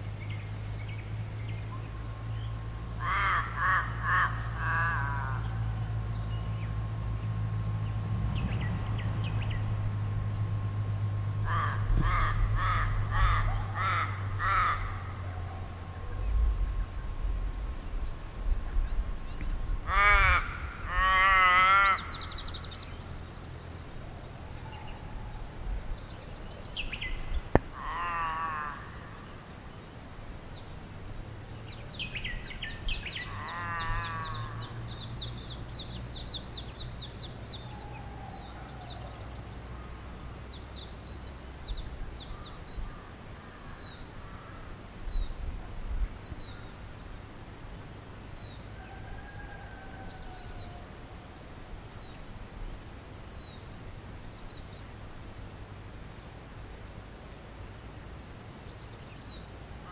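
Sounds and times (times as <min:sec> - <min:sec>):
soft bird calls: 0:00.0 - 0:30.9, 0:31.5 - 0:47.3
bird wavering calls: 0:01.4 - 0:07.4, 0:11.2 - 0:16.6, 0:17.8 - 0:29.5, 0:31.9 - 0:40.0.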